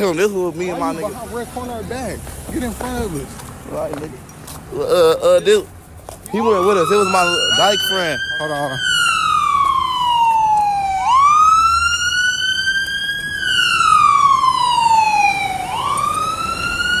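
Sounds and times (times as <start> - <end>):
fire engine siren wailing: 6.2 - 17.0.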